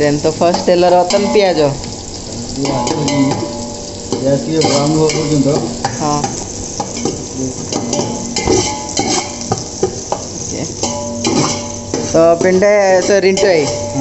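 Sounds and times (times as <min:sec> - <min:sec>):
onions sizzling in hot oil: 0:00.0 - 0:14.0
steel ladle scraping metal pot: 0:07.7 - 0:14.0.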